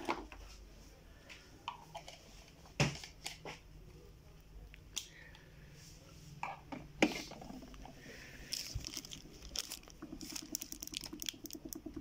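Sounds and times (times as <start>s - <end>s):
plastic bottles and caps clicking: 8.5s - 12.0s.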